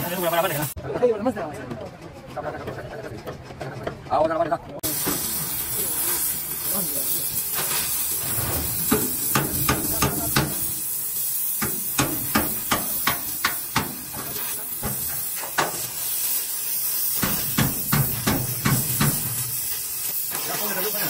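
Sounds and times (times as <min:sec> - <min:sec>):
steady hiss: 0:04.8 - 0:21.0
hammer striking: 0:08.4 - 0:10.6, 0:11.6 - 0:15.8, 0:17.2 - 0:19.3.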